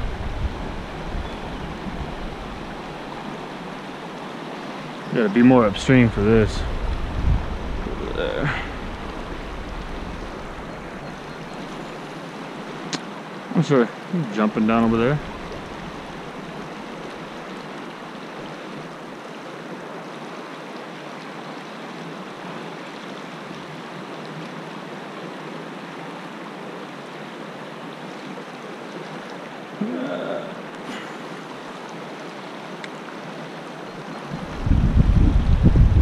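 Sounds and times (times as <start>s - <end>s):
river rushing over rocks: 0.0s - 34.8s.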